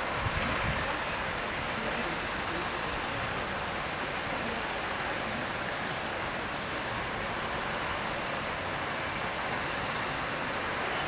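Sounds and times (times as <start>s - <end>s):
water rushing: 0.0s - 11.0s.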